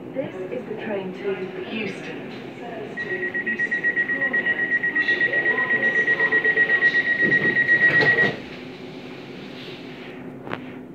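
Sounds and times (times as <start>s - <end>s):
train door warning beeps: 3.0s - 8.4s.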